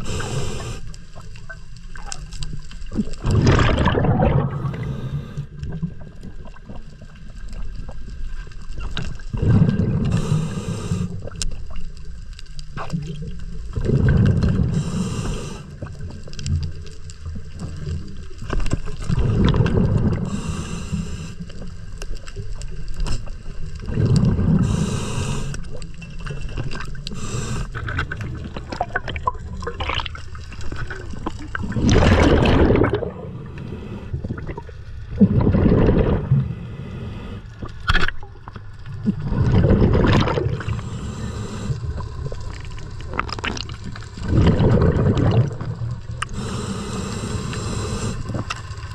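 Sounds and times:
regulator inhale hiss: 0:00.0 - 0:01.2, 0:04.5 - 0:05.6, 0:10.0 - 0:11.4, 0:14.5 - 0:15.9, 0:20.1 - 0:21.7, 0:24.4 - 0:25.8, 0:27.0 - 0:28.0, 0:33.3 - 0:34.2, 0:36.4 - 0:37.6, 0:40.6 - 0:42.0, 0:46.2 - 0:48.9
exhaled bubbles gurgling: 0:00.0 - 0:48.9.

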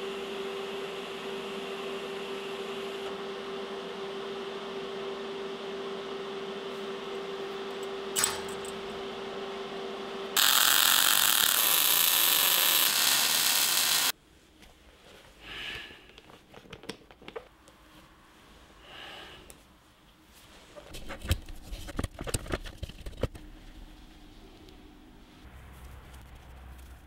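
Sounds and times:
welding arc humming and hissing: 0:00.0 - 0:03.4, 0:10.2 - 0:14.2
welding arc crackling with spatter: 0:10.4 - 0:14.1.

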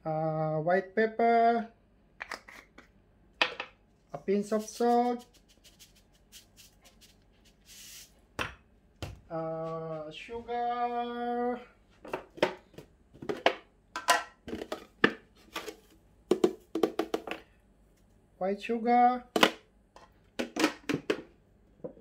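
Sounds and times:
salt shaker shaking: 0:04.5 - 0:08.1.

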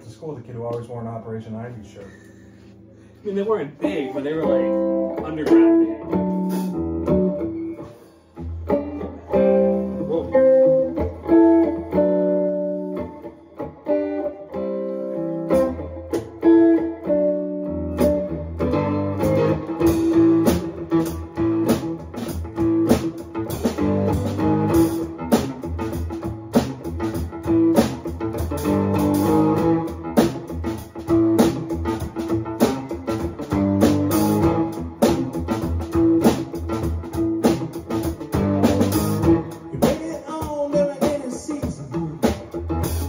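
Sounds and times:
guitar riff: 0:00.0 - 0:43.0
drum kit with cymbals: 0:06.3 - 0:06.9, 0:07.8 - 0:08.3, 0:19.2 - 0:43.0.

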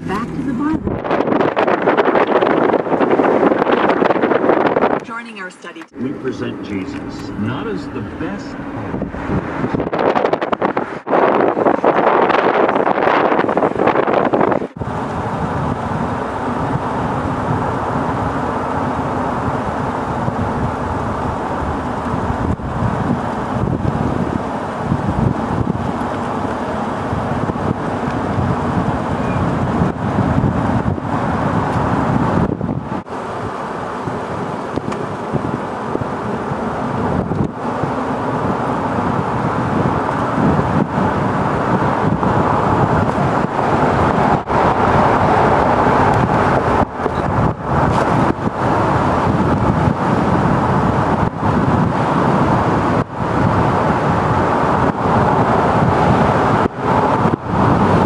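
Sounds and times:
vehicle engine and tyres on road: 0:00.0 - 0:58.0.

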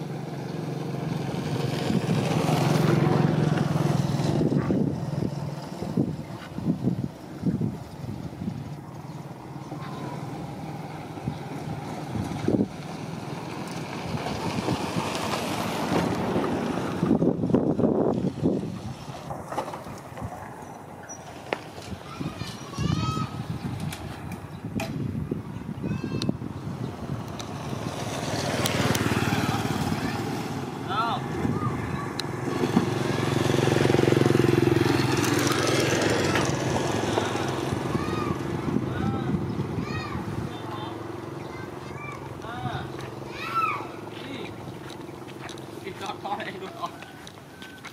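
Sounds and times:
motorcycle engine running: 0:00.0 - 0:15.6, 0:26.6 - 0:46.4
wind buffeting microphone: 0:01.0 - 0:47.6.

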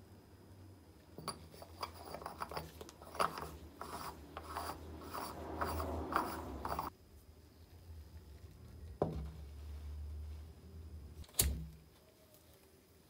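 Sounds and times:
metal cap rubbing on threads: 0:01.2 - 0:06.9.

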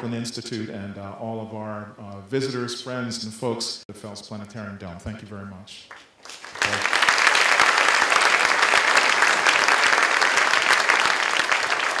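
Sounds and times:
audience clapping: 0:05.9 - 0:12.0.

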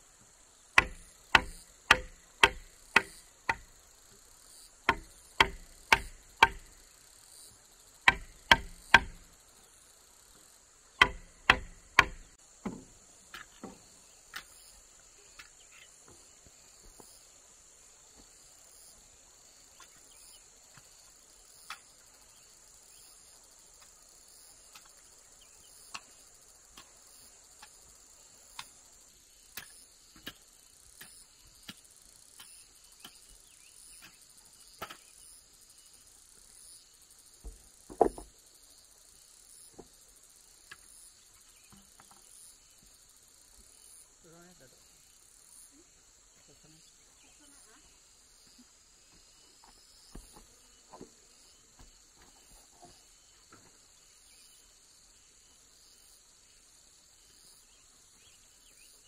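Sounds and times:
insects buzzing: 0:00.0 - 0:59.0
hammer blows on wood: 0:00.8 - 0:03.7.

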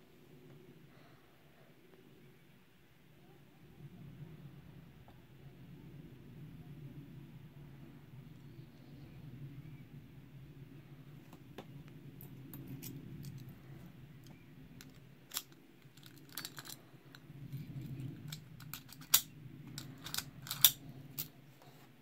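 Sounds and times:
low steady hum: 0:00.0 - 0:22.0
metal clicks of lock picking: 0:14.8 - 0:16.8, 0:18.2 - 0:21.3.

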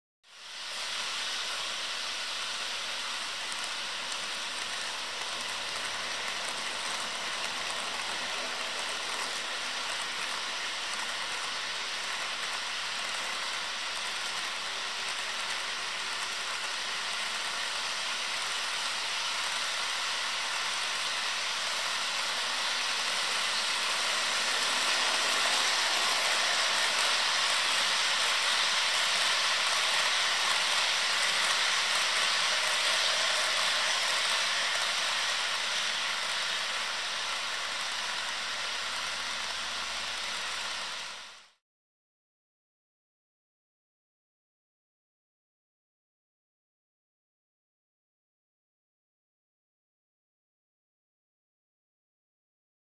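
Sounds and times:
model train wheels hissing on rails: 0:00.3 - 0:41.6.

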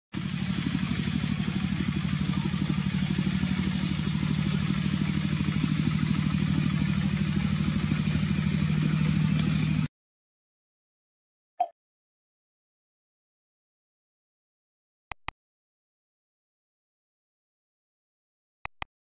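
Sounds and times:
small engine running: 0:00.0 - 0:09.9.

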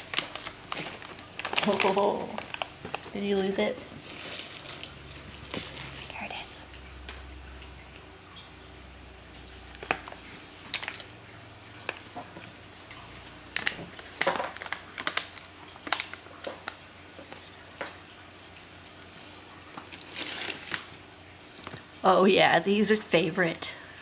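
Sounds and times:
cat rustling in paper shred: 0:00.0 - 0:06.2, 0:19.8 - 0:21.0.

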